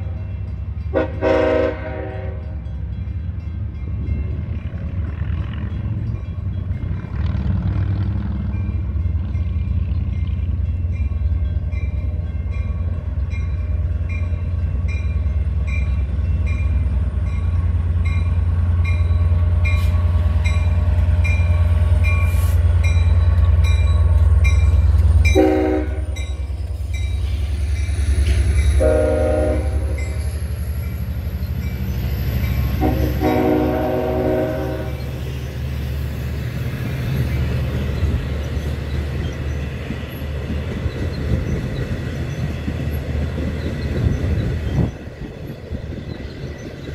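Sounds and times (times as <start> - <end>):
diesel locomotive engine drone: 0.0 - 46.9
train horn blasts: 0.9 - 2.6, 25.3 - 26.4, 28.7 - 30.2, 32.7 - 35.1.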